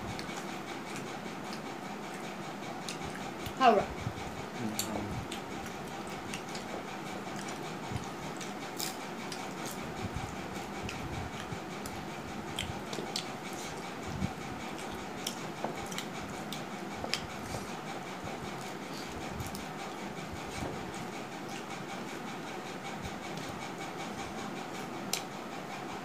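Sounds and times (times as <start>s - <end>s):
chewing and mouth smacks: 0.1s - 3.6s, 4.8s - 9.8s, 10.6s - 13.9s, 14.6s - 17.7s
fingers mixing rice on plates: 4.2s - 25.3s.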